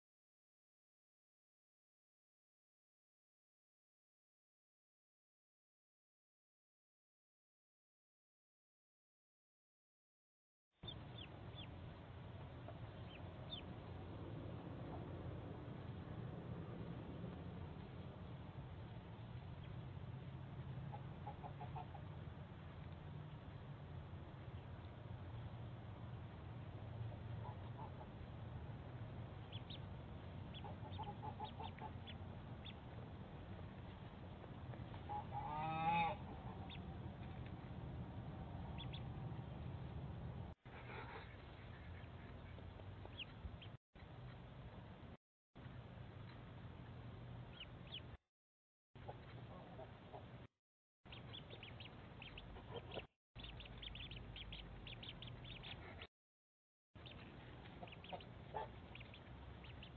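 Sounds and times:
ducklings peeping: 10.8 - 14.0, 20.8 - 23.7, 27.2 - 28.4, 29.2 - 37.6, 38.4 - 39.8, 40.8 - 44.3, 45.7 - 48.2, 49.0 - 50.4, 51.1 - 56.1, 57.0 - 59.9
steady low hum: 10.8 - 48.2
waterfowl call: 35.1 - 36.3.

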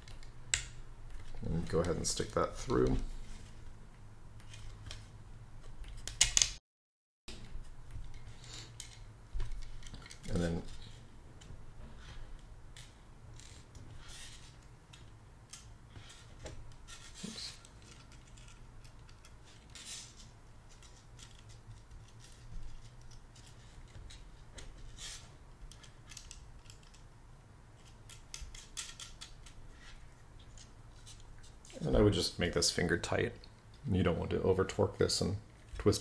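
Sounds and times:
small parts clicking: 8.1 - 11.0, 12.4 - 24.2, 25.0 - 27.1, 27.8 - 31.8.

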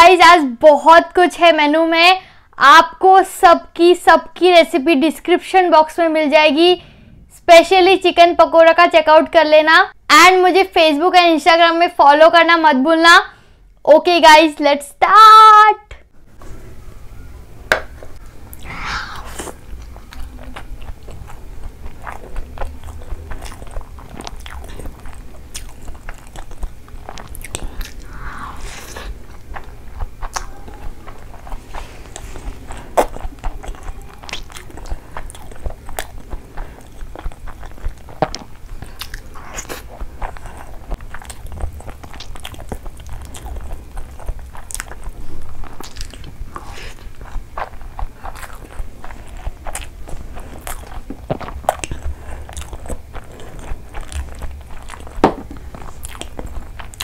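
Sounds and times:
wet mouth clicks: 18.5 - 30.8, 31.4 - 46.7
crunchy chewing: 19.3 - 57.0.

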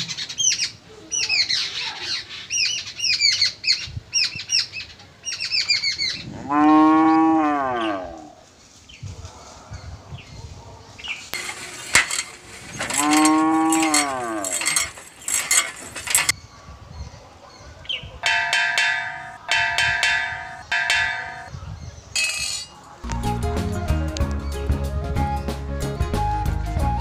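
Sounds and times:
clattering farmyard noise: 11.3 - 16.4, 18.2 - 21.5, 22.2 - 23.2
cattle mooing: 13.0 - 14.5
bell ringing: 18.2 - 21.5.

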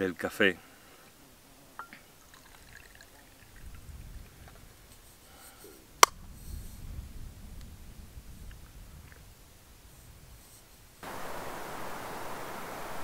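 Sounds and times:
coffee pouring into cup: 2.2 - 3.8.

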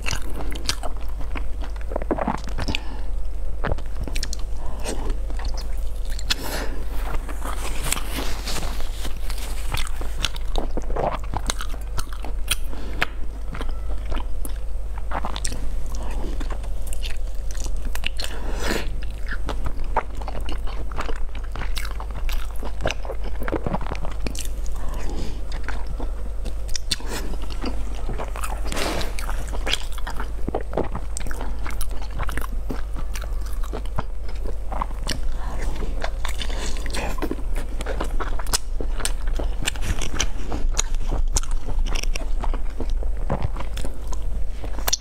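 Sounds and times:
chewing and biting squid: 0.0 - 3.0, 3.6 - 45.0
low hum: 0.0 - 45.0.

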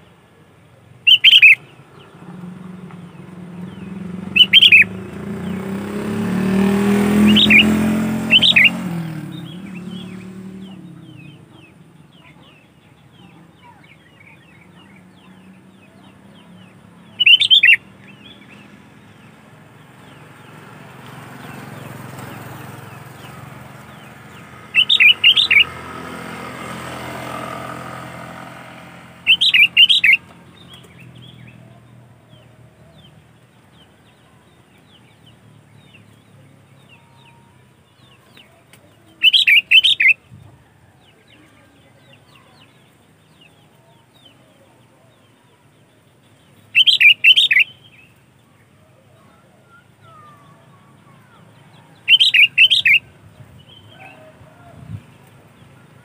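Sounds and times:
bird warbling: 1.0 - 2.5, 3.7 - 5.9, 6.6 - 12.6, 17.2 - 17.9, 24.6 - 25.8, 29.2 - 30.2, 39.2 - 40.2, 46.7 - 47.8, 49.2 - 53.1
faint bird chirps: 1.0 - 3.0, 3.6 - 5.6, 6.9 - 19.3, 24.8 - 25.8, 29.3 - 33.1, 36.4 - 53.1.

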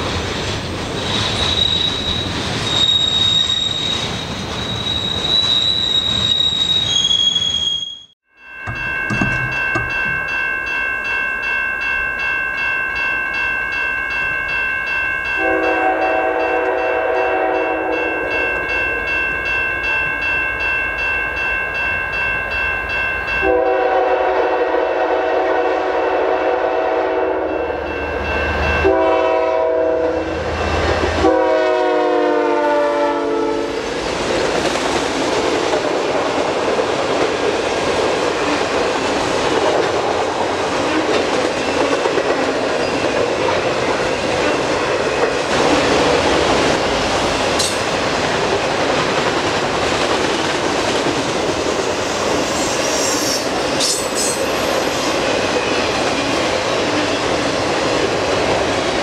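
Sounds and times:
crossing bell ringing: 8.3 - 33.9, 40.6 - 49.0, 50.3 - 57.5
freight cars rumbling and clacking: 8.6 - 10.4
locomotive air horn: 15.4 - 18.1, 23.4 - 27.6, 28.8 - 30.4, 31.2 - 33.8.

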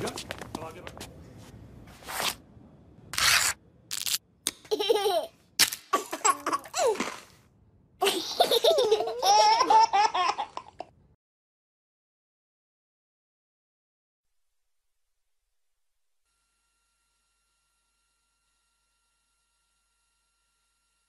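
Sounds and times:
person laughing: 4.7 - 5.3, 6.0 - 7.2, 8.0 - 10.8.

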